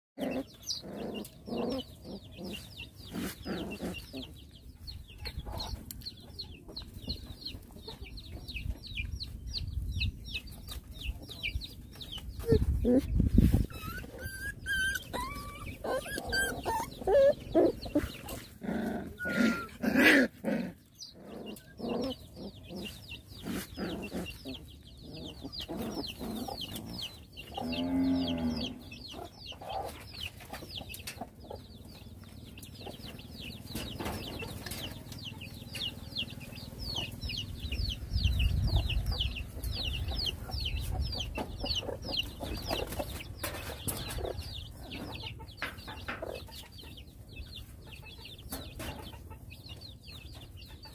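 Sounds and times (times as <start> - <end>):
puppies squealing and scuffling: 0.2 - 4.4, 12.2 - 27.6
chickens clucking: 0.2 - 50.9.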